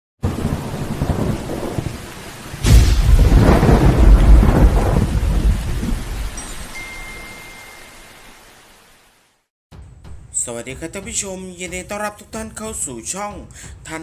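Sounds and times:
low thunder rumble: 0:00.2 - 0:06.4
sharp thunderclap: 0:00.2 - 0:06.4
rain hiss: 0:00.2 - 0:09.5.

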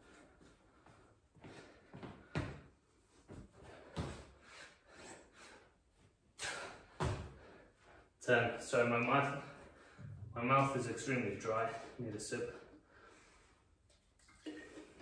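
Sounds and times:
dull thuds of hands and feet: 0:06.9 - 0:07.5.

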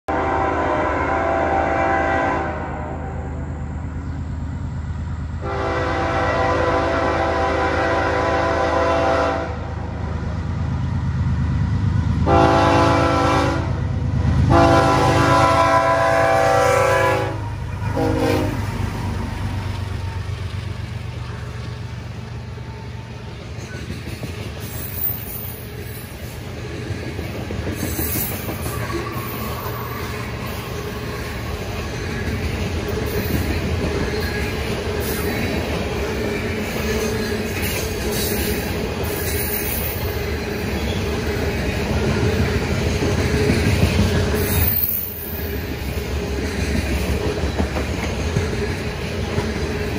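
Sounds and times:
locomotive horn blasts: 0:00.1 - 0:03.3, 0:05.4 - 0:09.7, 0:12.2 - 0:13.9, 0:14.5 - 0:18.7
train rumbling past: 0:00.1 - 0:49.9.

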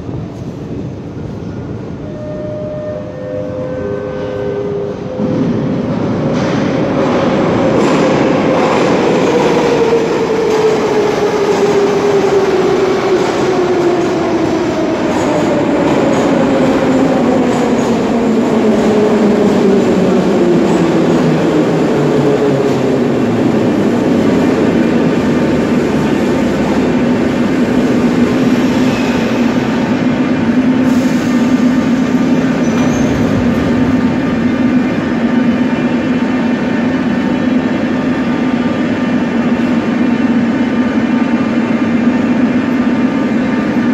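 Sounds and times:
standing train hum: 0:00.0 - 0:43.9
train wheels rumbling: 0:00.0 - 0:43.9
train braking whine: 0:02.0 - 0:05.9.

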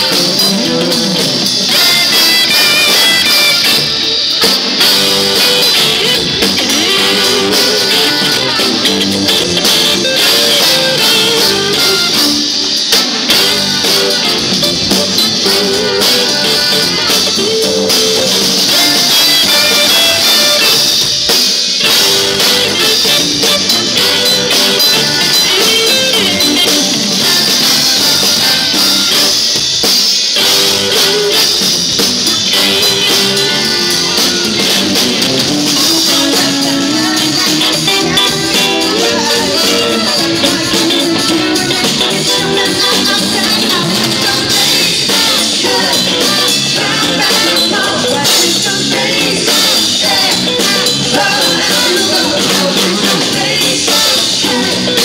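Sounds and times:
live funk band playing: 0:00.0 - 0:55.0
woman singing lead vocal: 0:35.8 - 0:55.0.

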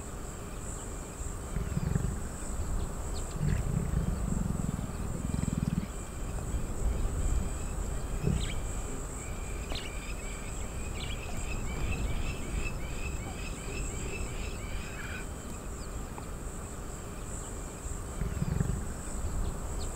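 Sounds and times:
high insect drone: 0:00.0 - 0:19.9
lion grumbling: 0:01.5 - 0:02.3, 0:03.3 - 0:08.9, 0:18.1 - 0:18.9.

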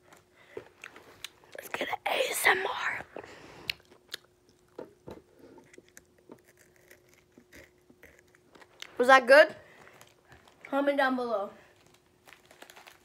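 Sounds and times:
chewing crunchy candy: 0:05.6 - 0:09.0.

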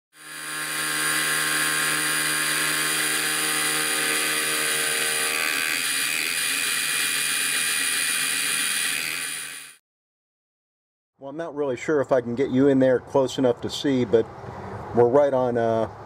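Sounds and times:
mill cutting aluminum: 0:00.1 - 0:09.8
steady motor whine: 0:00.2 - 0:09.8.

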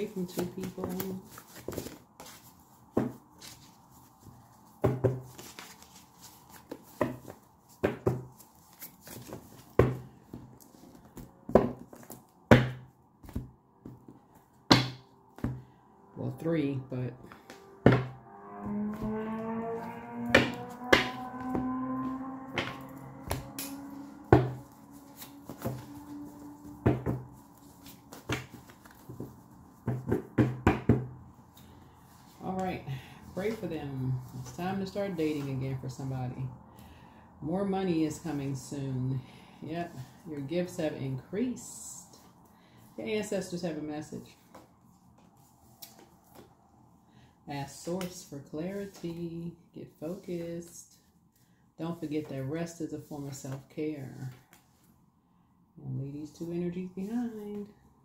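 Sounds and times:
cards being shuffled by hand: 0:00.1 - 0:04.6, 0:05.2 - 0:12.3.

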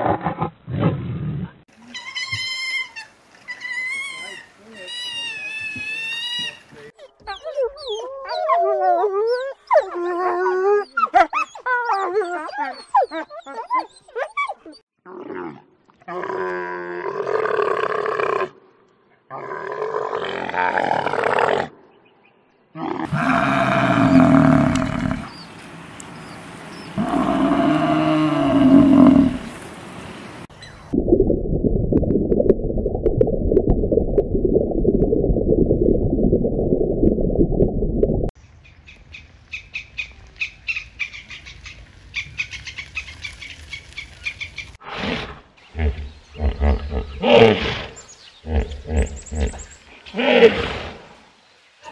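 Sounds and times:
underwater rushing water: 0:23.2 - 0:38.3.

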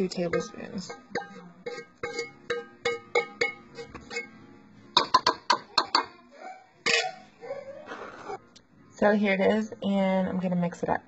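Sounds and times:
spoon clinking against bowl: 0:00.0 - 0:04.4, 0:05.0 - 0:06.1
plucked background music: 0:00.0 - 0:11.0.

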